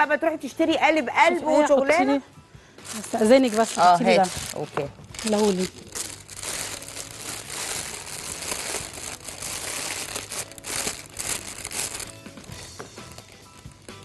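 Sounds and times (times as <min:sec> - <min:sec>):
plastic bag crinkling: 0:02.8 - 0:12.5.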